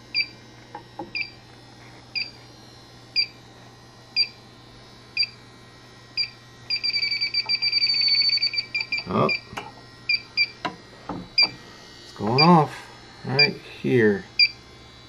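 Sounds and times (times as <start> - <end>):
leak detector beeping: 0.0 - 0.4, 1.0 - 1.5, 2.1 - 2.5, 3.1 - 3.4, 4.1 - 4.4, 5.0 - 5.4, 6.1 - 14.7.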